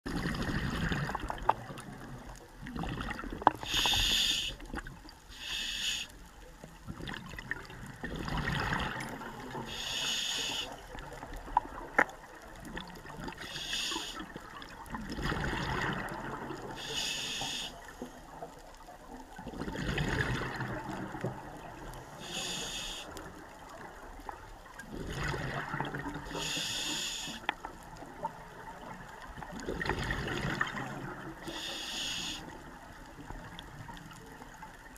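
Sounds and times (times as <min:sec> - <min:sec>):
diver breathing through regulator: 0:03.6 - 0:04.7, 0:05.3 - 0:06.2, 0:09.6 - 0:10.8, 0:13.4 - 0:14.3, 0:16.8 - 0:17.9, 0:22.1 - 0:23.2, 0:26.3 - 0:27.5, 0:31.4 - 0:32.5
bubbling exhale: 0:08.0 - 0:10.7, 0:24.8 - 0:27.4.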